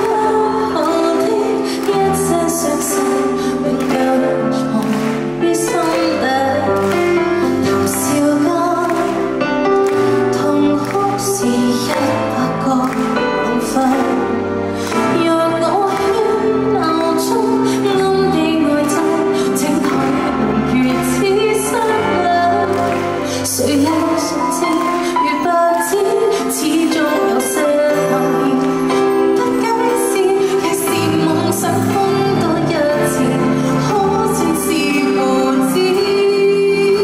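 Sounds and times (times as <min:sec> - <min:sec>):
musical accompaniment: 0:00.0 - 0:37.0
woman singing a ballad: 0:00.0 - 0:37.0.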